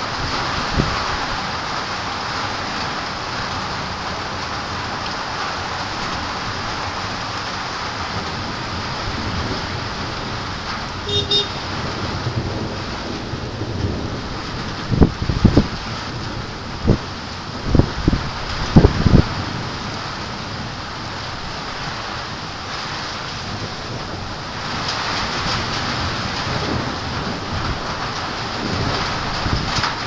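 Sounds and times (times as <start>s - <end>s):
heavy rain: 0.0s - 30.0s
brief high-pitched tone: 11.1s - 11.6s.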